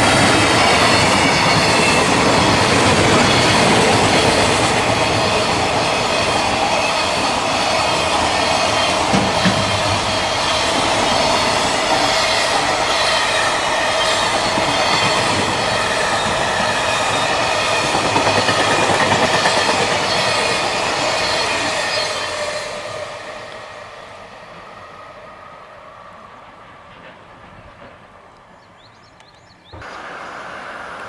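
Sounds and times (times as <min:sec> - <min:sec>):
freight train wheels clattering: 0:00.0 - 0:22.5.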